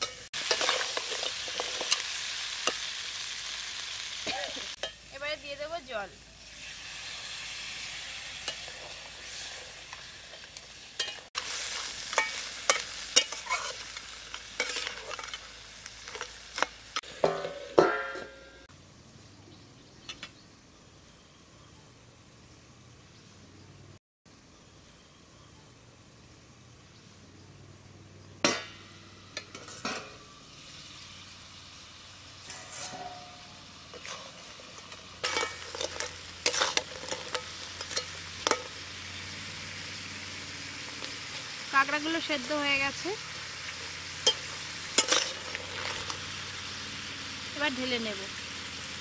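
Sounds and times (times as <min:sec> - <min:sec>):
metal spatula scraping wok: 0:00.0 - 0:05.1, 0:06.6 - 0:18.7, 0:28.5 - 0:30.4, 0:32.4 - 0:40.2, 0:43.3 - 0:46.8
water sizzling in hot wok: 0:00.0 - 0:18.7, 0:28.5 - 0:49.0
metal lid clanking on pan: 0:17.2 - 0:18.6, 0:28.4 - 0:30.2, 0:32.5 - 0:34.4, 0:35.2 - 0:38.8.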